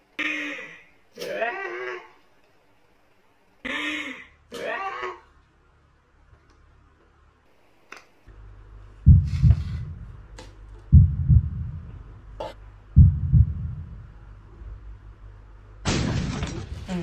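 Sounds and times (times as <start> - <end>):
low hum: 8.3 - 16.6
heartbeat double thumps: 9.0 - 10.3, 10.9 - 14.9.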